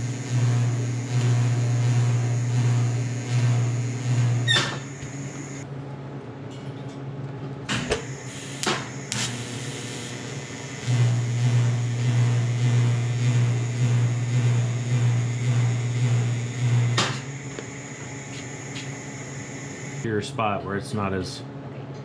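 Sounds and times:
welding arc humming: 0.0s - 5.6s, 7.7s - 20.1s
welder clicks: 7.9s - 9.6s.

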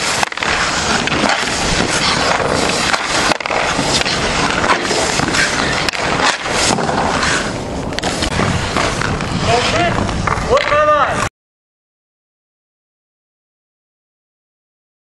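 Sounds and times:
skates scraping on ice: 0.0s - 11.3s.

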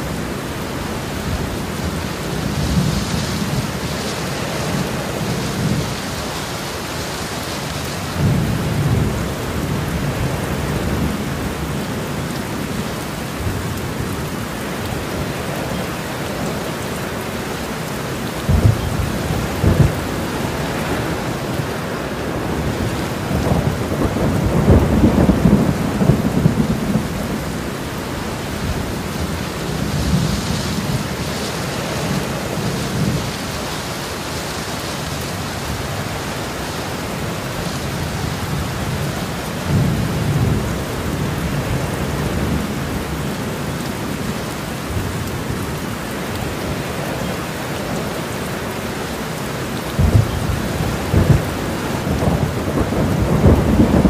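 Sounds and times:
steady rain: 0.0s - 54.0s
rolls of thunder: 50.0s - 54.0s.

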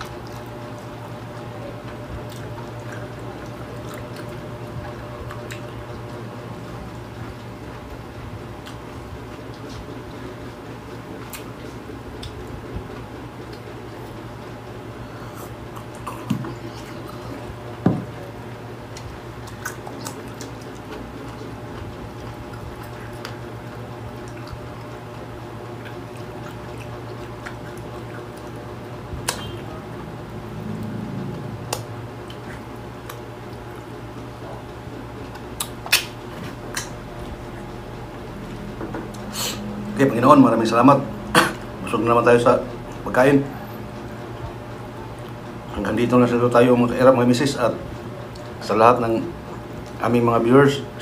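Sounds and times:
chewing: 0.0s - 6.2s, 15.1s - 29.6s, 30.8s - 39.6s
steady low hum: 0.0s - 51.0s.

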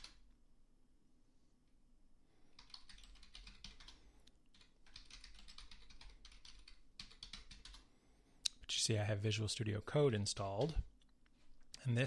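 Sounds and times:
typing on a computer keyboard: 0.0s - 0.2s, 2.6s - 7.9s, 10.4s - 10.8s.

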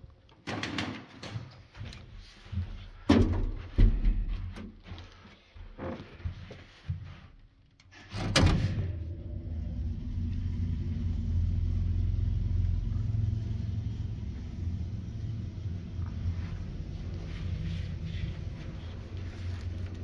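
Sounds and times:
lift car rumbling: 8.0s - 20.0s.

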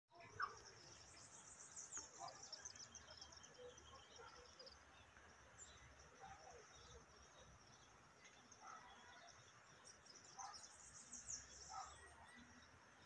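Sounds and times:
faint bird chirps: 0.1s - 13.0s.

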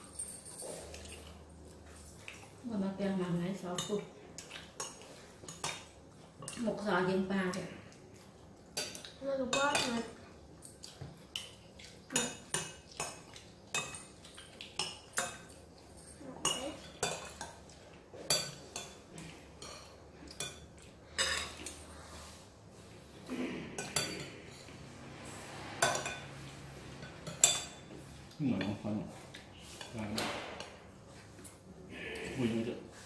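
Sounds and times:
cutlery clinking on ceramic plates: 14.8s - 21.8s, 23.8s - 24.8s.

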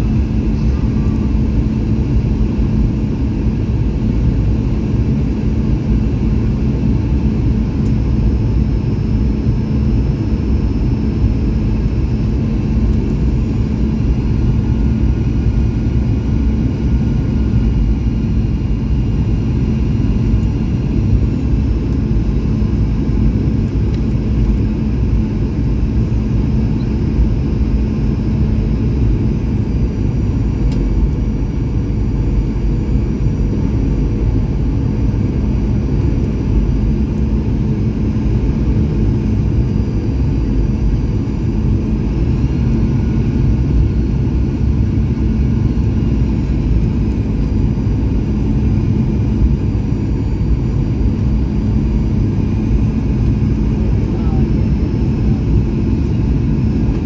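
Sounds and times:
faint high whine: 0.0s - 1.9s
aircraft engines and airflow rumble: 0.0s - 57.0s.

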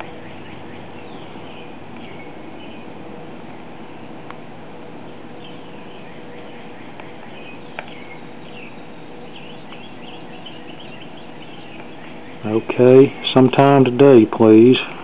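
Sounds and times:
small birds chirping: 0.0s - 15.0s
steady hiss: 11.4s - 15.0s.

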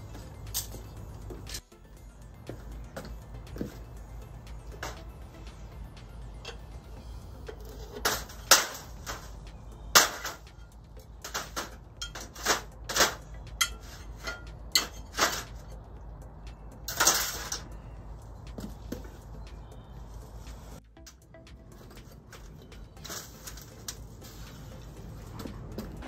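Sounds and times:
metal tools rattling: 7.4s - 15.8s, 16.8s - 17.8s
metal knocks and clanks: 7.5s - 15.8s, 16.8s - 17.8s.

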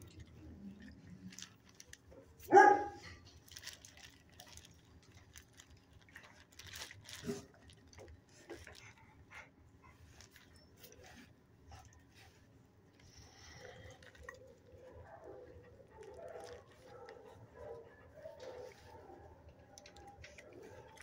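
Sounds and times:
dogs shuffling and sniffing: 0.0s - 21.0s
dog barking: 2.4s - 3.1s, 14.8s - 19.3s.

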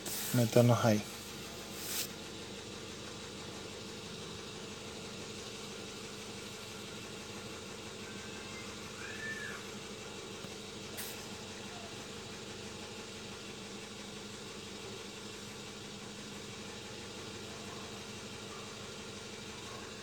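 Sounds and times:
short hiss: 0.0s - 2.4s, 10.9s - 11.5s
car engine idling: 0.0s - 20.0s
rising and falling squeak: 8.2s - 9.6s.

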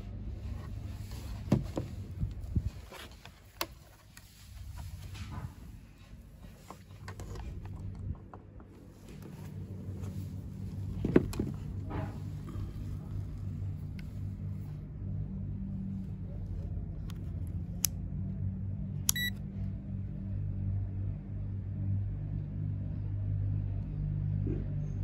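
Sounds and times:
steady low hum: 0.0s - 25.0s
short high meter beep: 19.1s - 19.3s.

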